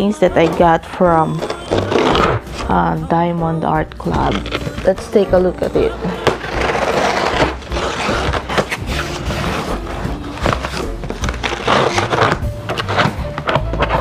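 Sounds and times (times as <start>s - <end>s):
cardboard flaps scraping: 1.4s - 2.7s, 4.1s - 5.2s, 5.8s - 14.0s
packing tape ripping: 1.4s - 2.7s, 4.1s - 5.0s, 6.0s - 14.0s.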